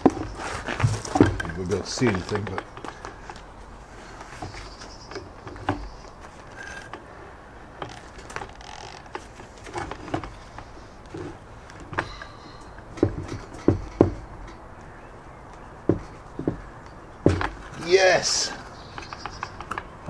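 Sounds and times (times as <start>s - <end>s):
sharp knocks: 11.8s - 14.6s, 15.8s - 17.8s
metallic clicks taps and scrapes: 18.9s - 20.0s.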